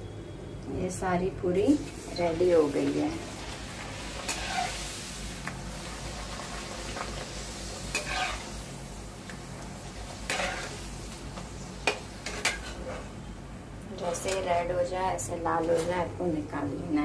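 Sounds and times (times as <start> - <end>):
oil sizzling in deep frying: 1.5 - 13.2
steel spoon scraping a pan: 4.1 - 5.0, 7.9 - 8.6, 10.3 - 10.8.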